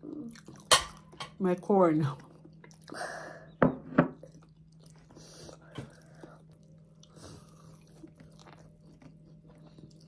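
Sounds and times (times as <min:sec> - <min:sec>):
low steady hum: 0:00.0 - 0:10.0
chewing and biting vegetables: 0:04.2 - 0:10.0.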